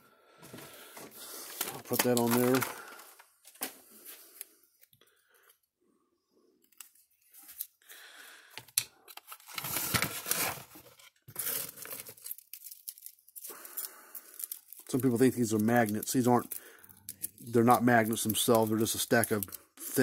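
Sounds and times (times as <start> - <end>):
scrapes rustles and clicks: 0.4 - 4.2.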